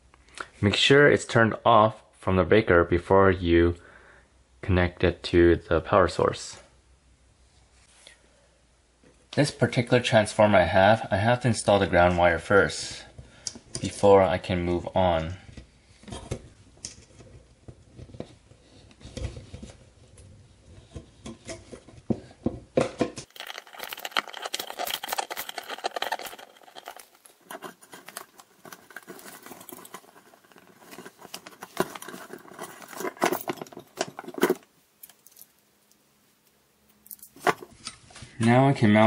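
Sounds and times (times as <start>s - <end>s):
small clicks and scrapes of wiring: 23.2s - 36.0s.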